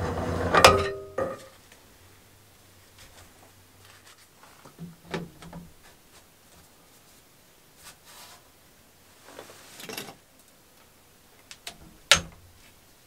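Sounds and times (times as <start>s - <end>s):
metallic clank: 0.5s - 1.5s.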